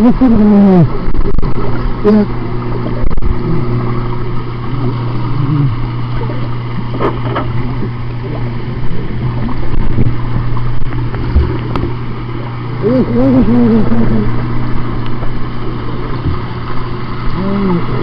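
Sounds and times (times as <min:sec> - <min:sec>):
steady low hum: 0:00.0 - 0:18.0
underwater rushing water and bubbles: 0:00.0 - 0:18.0.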